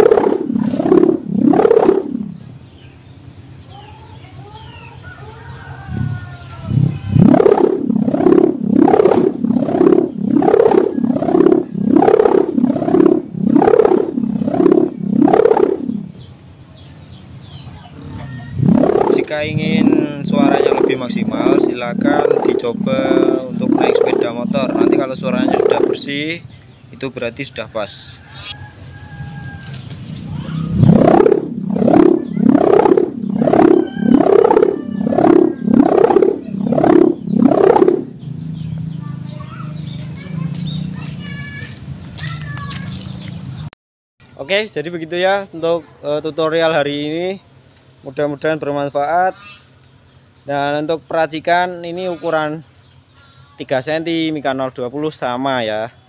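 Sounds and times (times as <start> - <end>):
kite hummer pulsing drone: 0.0 - 2.8, 5.9 - 16.5, 18.0 - 26.5, 28.4 - 41.9
birds chirping faintly: 0.0 - 56.0.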